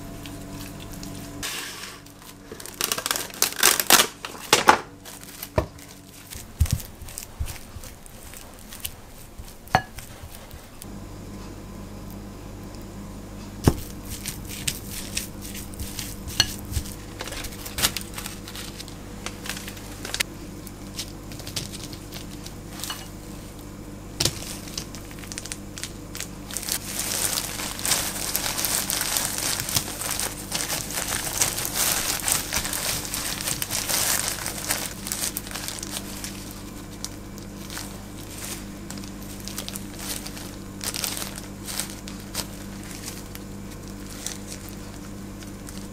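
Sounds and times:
plastic gloves crinkling: 0:00.0 - 0:10.9, 0:13.6 - 0:23.6, 0:24.2 - 0:45.9
oatmeal mixed in glass bowl: 0:05.4 - 0:10.8, 0:13.8 - 0:20.2, 0:20.8 - 0:23.5.

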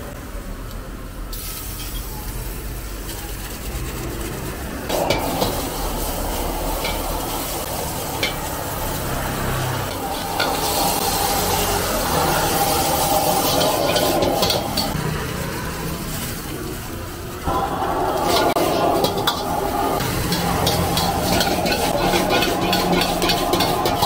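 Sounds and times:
food sizzling: 0:01.3 - 0:24.0
ladle scraping a wok: 0:03.0 - 0:15.0, 0:17.5 - 0:24.0
ladle clinking against wok: 0:20.1 - 0:24.0.

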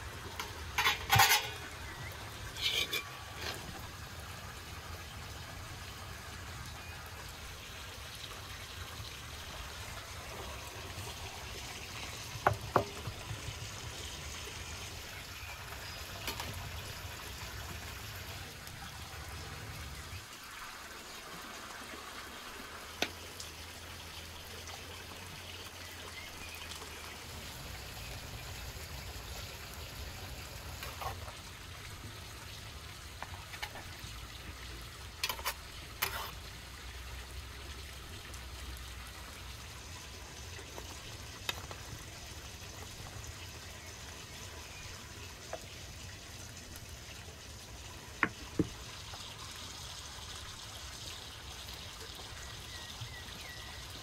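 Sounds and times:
trickling water: 0:00.0 - 0:54.0
ladle clinking on metal tray: 0:00.8 - 0:01.6, 0:02.6 - 0:03.6.

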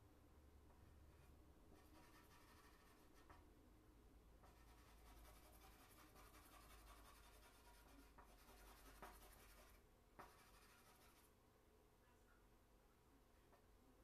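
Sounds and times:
charcoal scratching on paper: 0:01.1 - 0:03.4, 0:04.4 - 0:11.3.

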